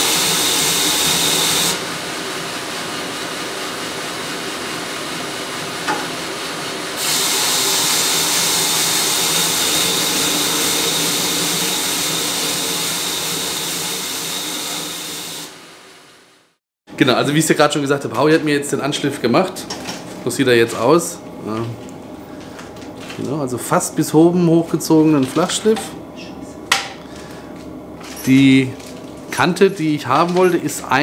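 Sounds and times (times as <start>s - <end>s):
belt grinder grinding metal: 0.0s - 1.8s, 7.0s - 15.5s.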